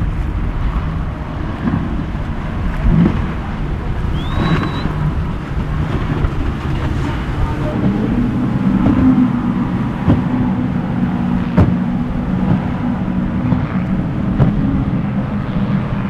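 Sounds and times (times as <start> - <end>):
boat outboard engines running: 0.0 - 16.0
wind rumble on microphone: 0.0 - 16.0
rising whistle: 4.1 - 5.1.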